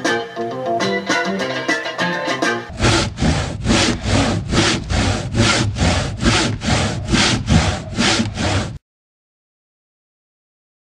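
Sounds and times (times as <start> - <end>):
hand saw cutting wood: 2.7 - 8.8.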